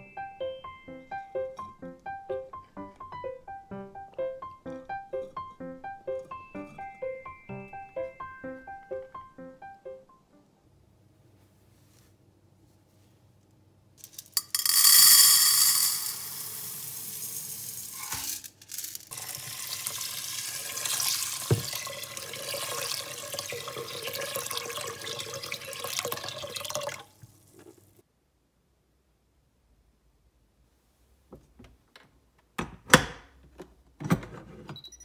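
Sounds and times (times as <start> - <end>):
grains rattling into pot: 14.0 - 25.2
water pouring and splashing: 19.1 - 28.0.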